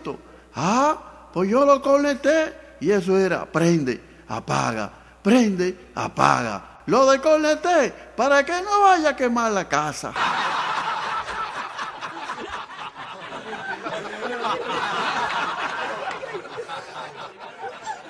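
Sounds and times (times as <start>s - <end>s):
audience laughing: 10.1s - 18.0s.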